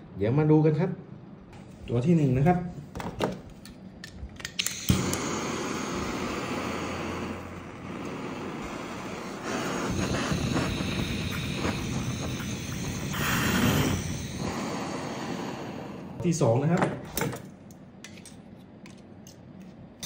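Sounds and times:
gas flame hissing: 3.5s - 17.8s
torch igniter clicks: 3.6s - 15.6s.

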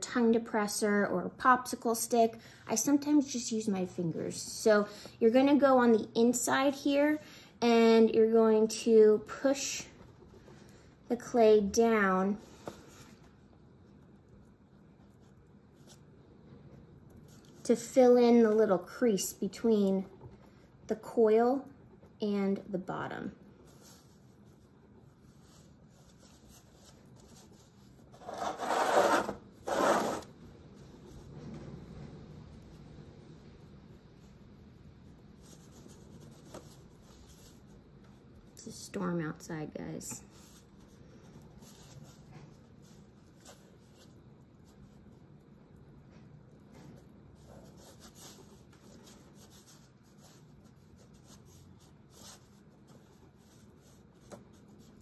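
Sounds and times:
hand rubbing clay board: 23.0s - 32.3s, 46.6s - 55.0s.

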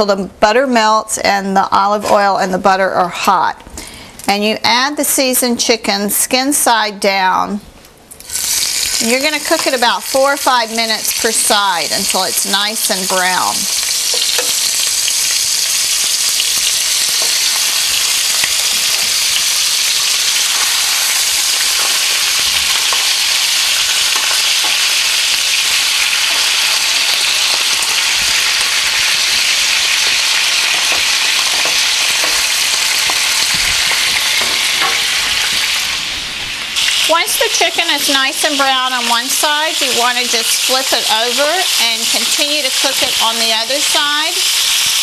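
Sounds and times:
chicken sizzling in a skillet: 8.2s - 45.0s.

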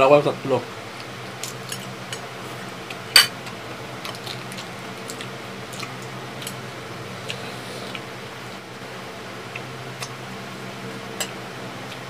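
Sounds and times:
close chewing: 4.1s - 6.6s.

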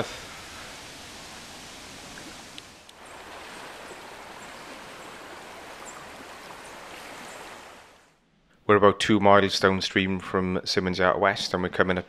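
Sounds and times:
fast river rushing: 0.0s - 8.1s.

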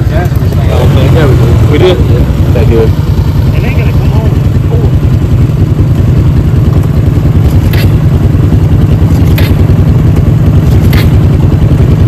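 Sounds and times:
atv engine running: 0.0s - 12.0s
short sharp noises: 7.5s - 8.0s, 9.1s - 9.7s, 10.6s - 11.3s.

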